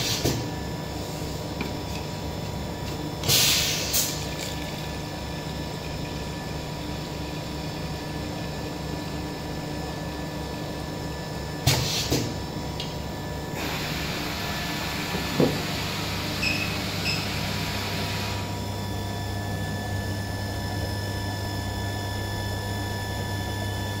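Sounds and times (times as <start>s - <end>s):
filling machine humming: 0.0s - 11.7s, 12.3s - 24.0s
pneumatic hiss: 3.2s - 4.2s, 11.6s - 12.3s.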